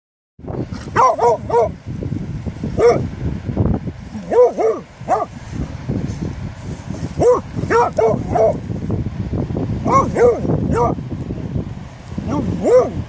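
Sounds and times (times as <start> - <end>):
dog yelping barks: 0.9 - 1.8, 2.8 - 3.0, 4.2 - 5.3, 7.2 - 8.6, 9.8 - 11.0, 12.3 - 13.0.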